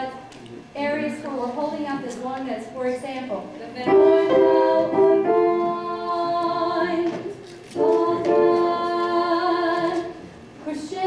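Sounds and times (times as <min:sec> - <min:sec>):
choir singing: 0:03.9 - 0:07.1, 0:07.8 - 0:10.2.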